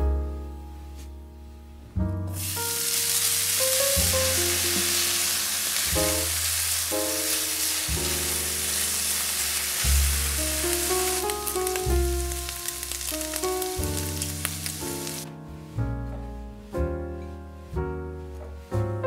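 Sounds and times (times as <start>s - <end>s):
piano background music: 0.0s - 19.0s
bacon sizzling in a pan: 2.4s - 15.3s.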